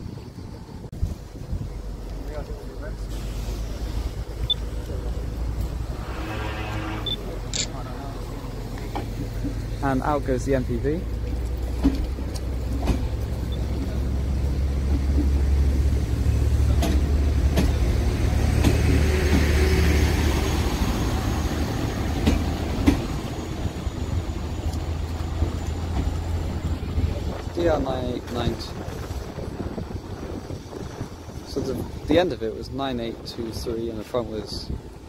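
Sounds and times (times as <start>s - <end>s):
diesel rail vehicle engine hum: 0.0s - 35.0s.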